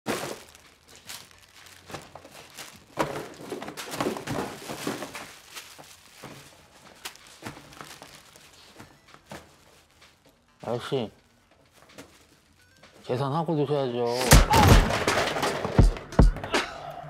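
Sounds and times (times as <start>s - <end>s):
plastic packaging crinkling: 0.1s - 13.1s
footsteps: 0.1s - 13.2s.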